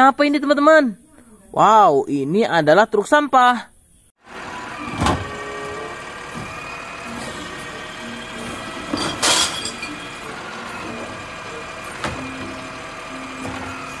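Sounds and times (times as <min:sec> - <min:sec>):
garbage truck running: 0:04.2 - 0:14.0
garbage cart clattering: 0:04.4 - 0:14.0.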